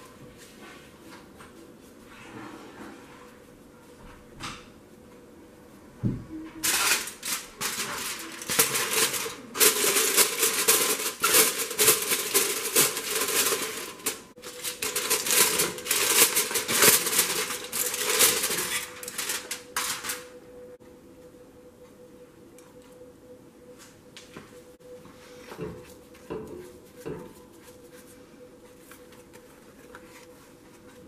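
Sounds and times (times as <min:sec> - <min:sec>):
aluminium foil crinkling: 0:06.6 - 0:20.4.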